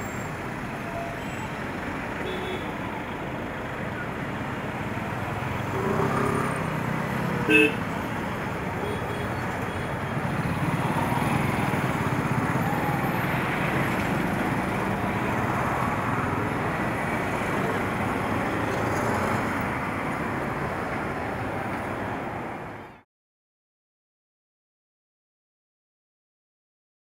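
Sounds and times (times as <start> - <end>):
cars passing: 0.0 - 22.8
roar of engines and tyres: 0.0 - 22.9
auto-rickshaw engines: 0.0 - 23.0
motorcycles running: 4.9 - 19.7.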